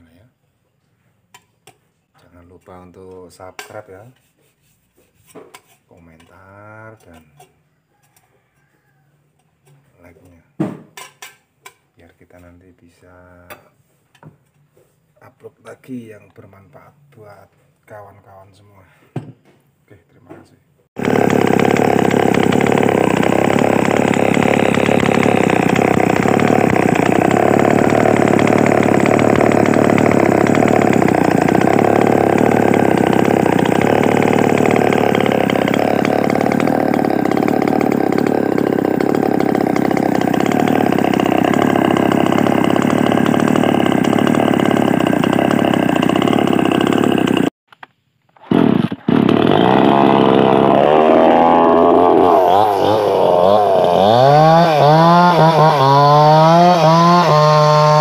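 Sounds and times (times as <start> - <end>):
chainsaw running: 21.0 - 47.6, 48.4 - 58.0.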